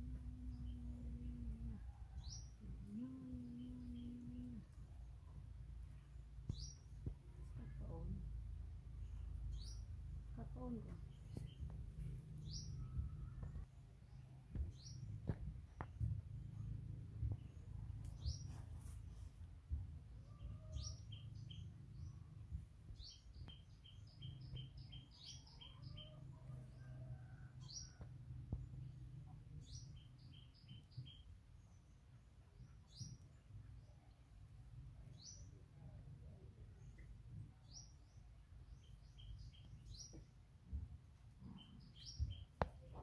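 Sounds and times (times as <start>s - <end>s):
low background rumble: 0.0s - 23.6s
songbird chirping: 0.0s - 43.0s.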